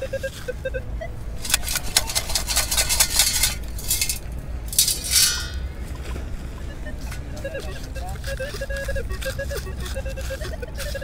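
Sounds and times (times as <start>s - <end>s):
gravel rattling in metal scoop: 1.4s - 5.6s.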